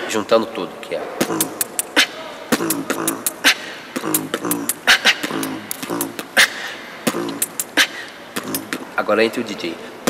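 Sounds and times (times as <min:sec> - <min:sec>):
beatboxing: 0:01.1 - 0:09.1.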